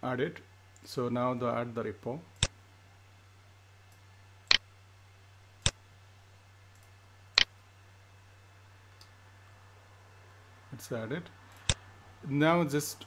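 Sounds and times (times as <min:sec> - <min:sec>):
faint low hum: 0:00.0 - 0:13.0
computer mouse clicks: 0:11.5 - 0:11.8.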